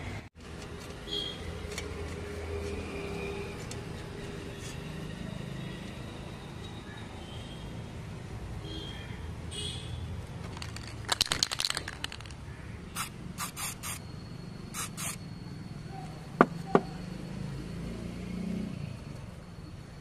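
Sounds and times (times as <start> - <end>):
aerosol spray can bursts: 13.0 - 14.0, 14.8 - 15.2.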